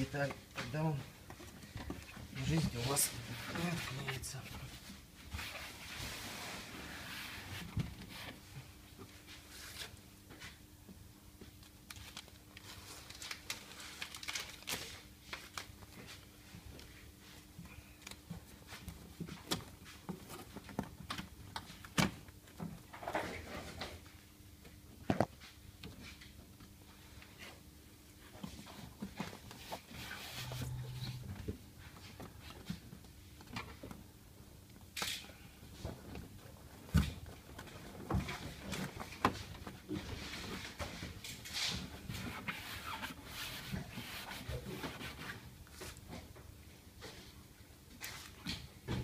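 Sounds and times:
soft rustling of sheet material: 2.2 - 10.6.

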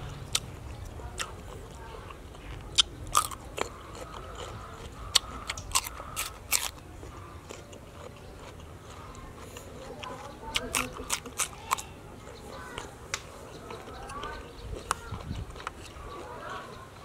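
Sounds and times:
person crunching chicken: 0.3 - 12.9.

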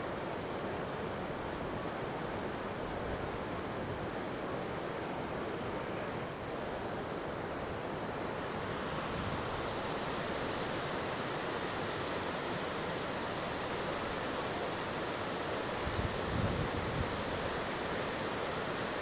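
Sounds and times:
river current rushing: 0.0 - 19.0.

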